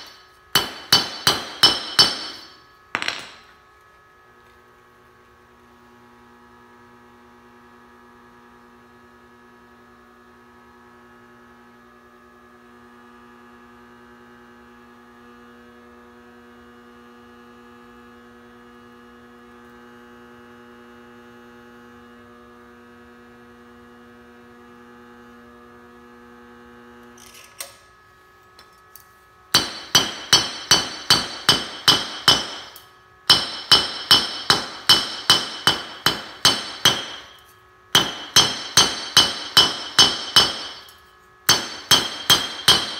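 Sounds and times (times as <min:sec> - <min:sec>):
hammer striking bolt on anvil: 0:00.0 - 0:03.5, 0:29.5 - 0:42.9
induction heater humming: 0:00.0 - 0:04.4, 0:26.1 - 0:42.9.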